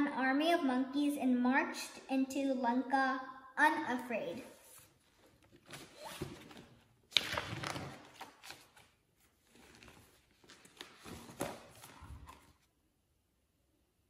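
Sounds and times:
book pages turning: 4.7 - 12.7.

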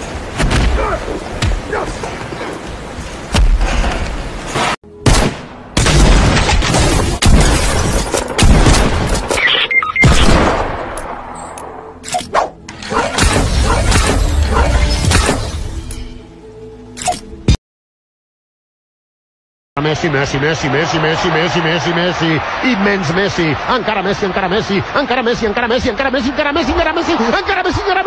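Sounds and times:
soundtrack music: 8.8 - 17.5.

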